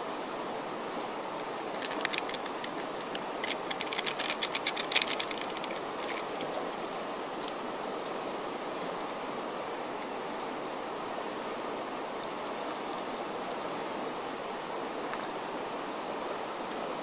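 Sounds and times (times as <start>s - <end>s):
steady rushing background noise: 0.0s - 10.8s
plastic sachet crackling: 1.8s - 6.7s.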